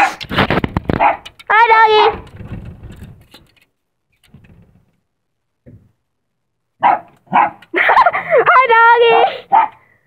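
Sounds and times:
small dog barking: 0.9s - 1.3s, 6.8s - 7.6s, 9.0s - 9.8s.

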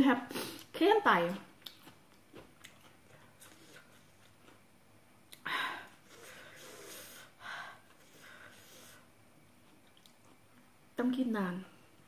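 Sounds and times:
woman breathing hard: 5.4s - 9.1s.

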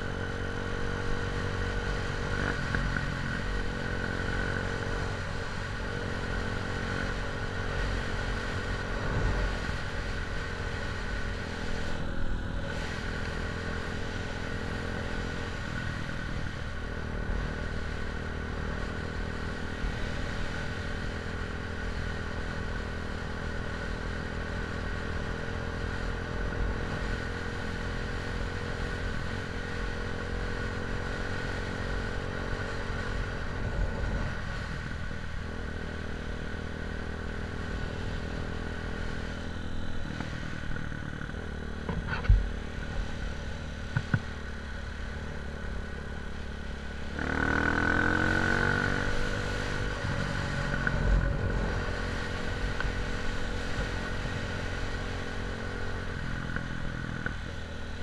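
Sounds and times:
vehicle engine running: 0.0s - 58.0s.

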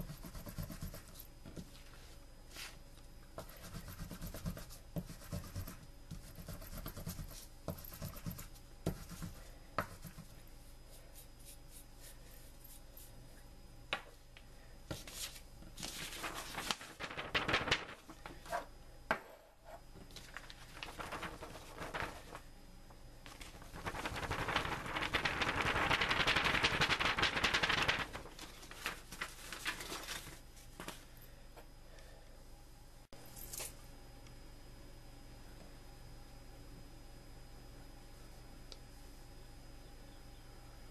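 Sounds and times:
paper rustling: 14.9s - 18.6s, 20.1s - 22.4s, 23.3s - 31.0s.

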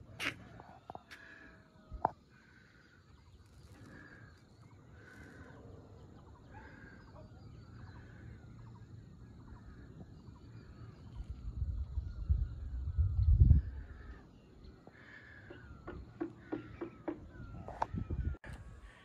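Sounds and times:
distant birds calling: 0.0s - 19.0s
wind rumble on microphone: 11.0s - 14.3s, 17.2s - 18.9s.

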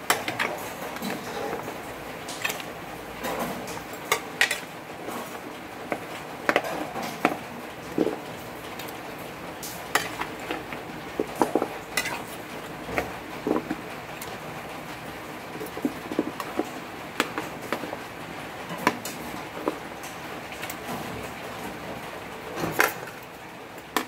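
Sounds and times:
water boiling in a pot: 0.0s - 24.0s
metal utensil clinking on pot: 11.3s - 12.4s.

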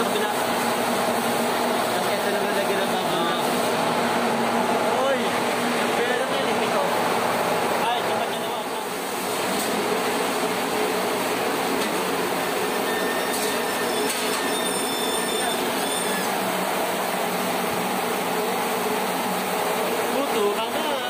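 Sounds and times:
faint short high squeaks: 12.9s - 16.3s.

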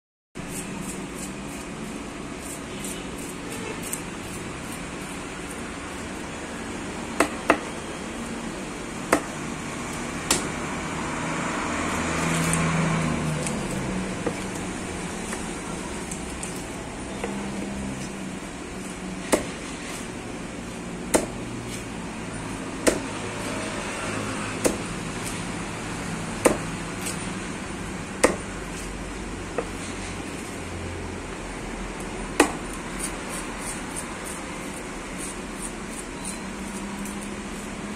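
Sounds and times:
knife chopping on wooden block: 7.2s - 7.7s, 9.1s - 9.4s, 10.2s - 10.6s, 14.2s - 14.6s, 19.2s - 20.0s, 21.1s - 21.9s, 22.8s - 23.2s, 24.6s - 24.9s, 26.4s - 27.2s, 28.2s - 28.8s, 32.4s - 34.4s.

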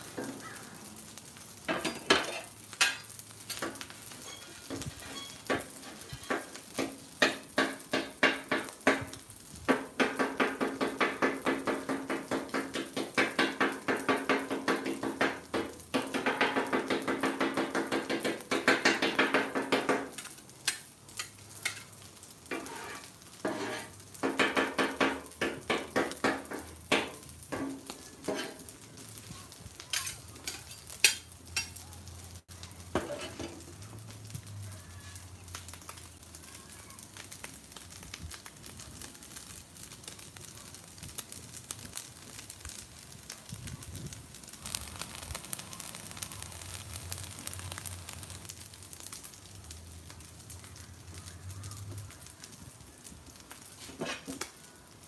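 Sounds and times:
food sizzling on griddle: 0.0s - 55.0s
metal spatulas clacking on griddle: 1.7s - 28.7s, 29.8s - 31.8s, 32.9s - 33.6s.

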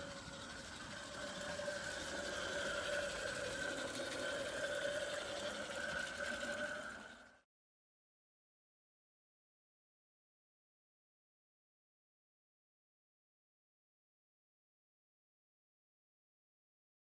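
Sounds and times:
model locomotive whirring: 0.0s - 7.5s.

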